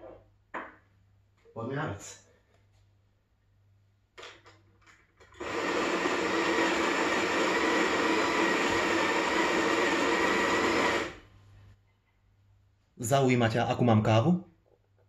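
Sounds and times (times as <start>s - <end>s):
coffee grinder whirring: 5.2s - 11.2s.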